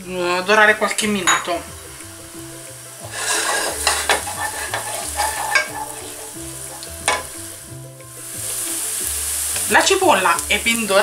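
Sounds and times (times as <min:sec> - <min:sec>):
onion sizzling in butter: 0:00.0 - 0:11.0
wooden spoon scraping a pan: 0:03.0 - 0:09.8.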